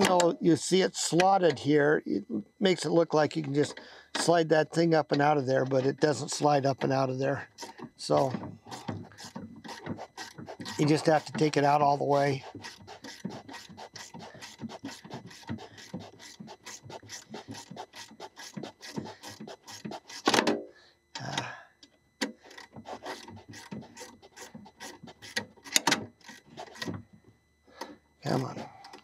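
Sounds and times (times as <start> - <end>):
metal scrape: 7.5 - 20.3, 22.8 - 26.9.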